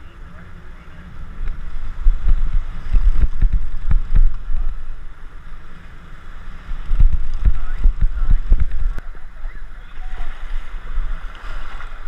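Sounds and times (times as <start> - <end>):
waves washing up beach: 0.0 - 12.0
thumps on microphone: 2.1 - 4.7.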